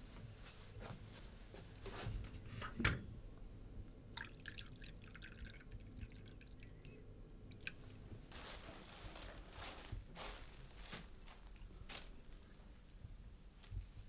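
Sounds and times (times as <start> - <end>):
coffee pouring into cup: 4.1 - 7.0
paper rustling: 8.3 - 12.6.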